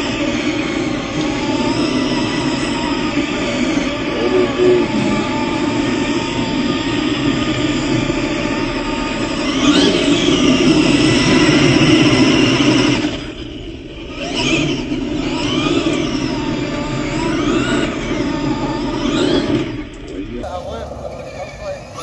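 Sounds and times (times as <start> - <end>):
electric motor whine: 0.0 - 22.0
tyres spinning on dirt: 20.4 - 22.0.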